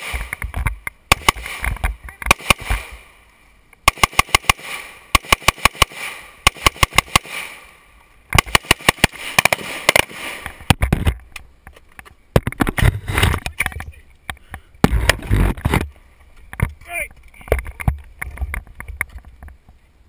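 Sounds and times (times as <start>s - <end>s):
handgun shots: 1.1s - 1.7s.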